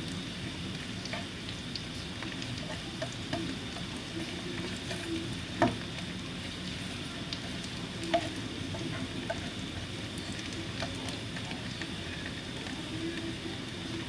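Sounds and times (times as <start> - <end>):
oil sizzling in a pan: 0.0 - 14.0
spatula stirring oil: 0.0 - 14.0.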